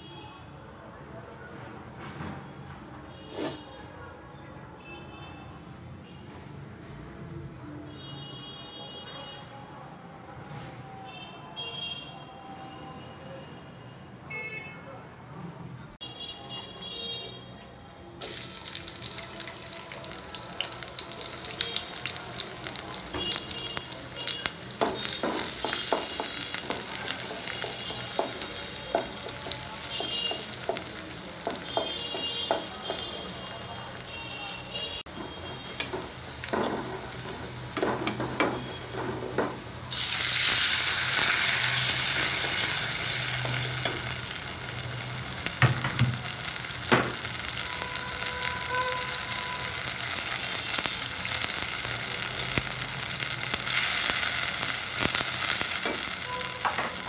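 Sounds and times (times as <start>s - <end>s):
onions sizzling in hot oil: 18.2s - 57.0s.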